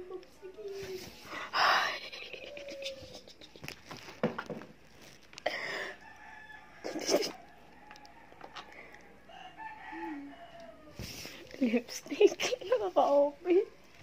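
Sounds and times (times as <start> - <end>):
rooster crowing: 5.7 - 11.0.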